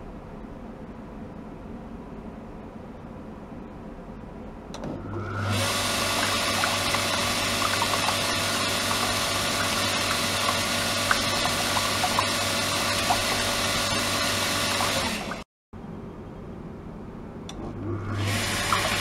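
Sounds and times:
water pump motor humming: 0:04.9 - 0:15.5, 0:17.5 - 0:19.0
water pouring into plastic tub: 0:05.4 - 0:15.4, 0:18.1 - 0:19.0.

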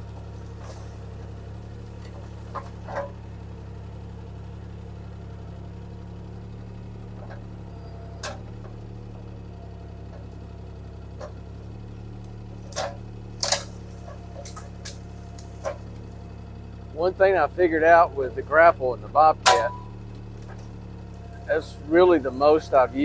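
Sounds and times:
diesel engine running: 0:00.0 - 0:23.0
sharp metal knocks and clanks: 0:19.4 - 0:20.7.

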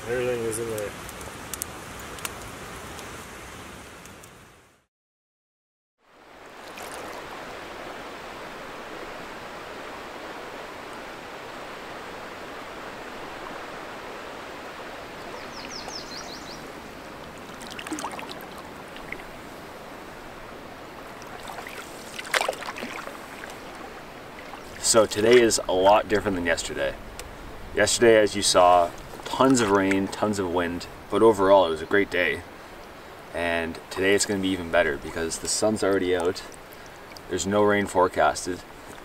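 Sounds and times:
campfire crackling: 0:00.0 - 0:04.8, 0:06.2 - 0:39.0
rain hissing: 0:00.0 - 0:04.8, 0:06.2 - 0:39.0
water rushing along canoe: 0:06.1 - 0:39.0
paddle strokes splashing: 0:06.4 - 0:27.4, 0:28.5 - 0:30.3.

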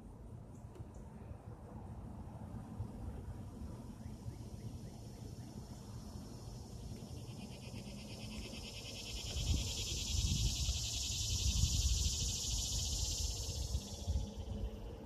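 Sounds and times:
high pulsing insect buzz: 0:04.1 - 0:15.0.

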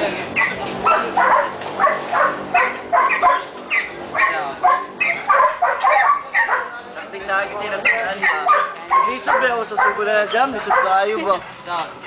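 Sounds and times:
dog barking: 0:00.4 - 0:06.8, 0:07.8 - 0:11.0.

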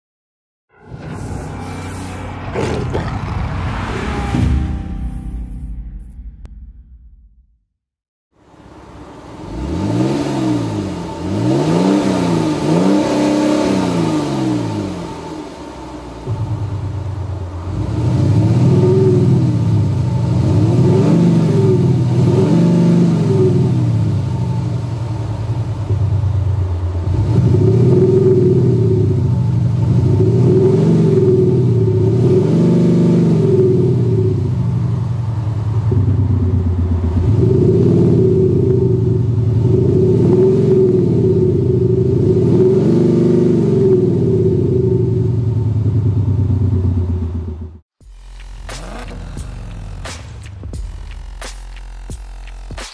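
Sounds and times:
car engine revving: 0:00.7 - 0:05.3, 0:08.5 - 0:52.8
deep full drone: 0:00.7 - 0:07.6
synthetic exhaust note from speaker: 0:48.0 - 0:50.1.

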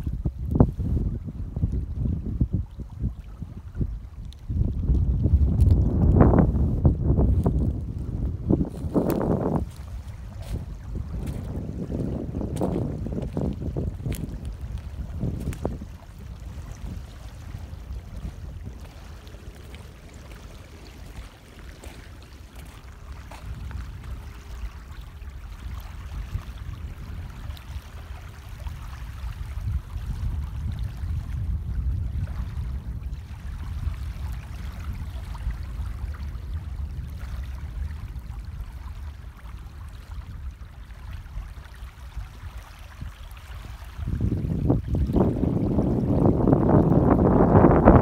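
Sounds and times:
wind buffeting microphone: 0:00.0 - 0:48.0
floodwater rushing: 0:05.2 - 0:30.1.

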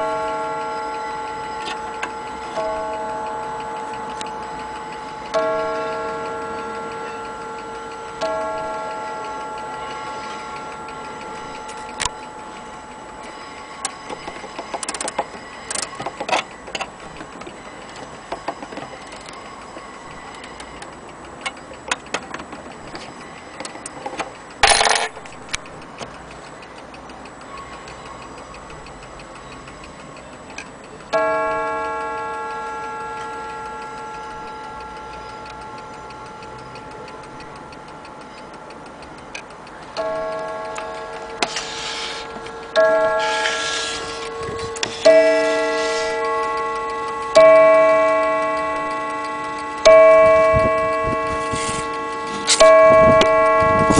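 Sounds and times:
clock striking ringing note: 0:00.0 - 0:21.2, 0:22.8 - 0:25.2, 0:31.1 - 0:53.9
clock hands clicking: 0:00.0 - 0:53.9
mantel clock ticking: 0:00.0 - 0:53.9
rattle: 0:21.9 - 0:26.0.

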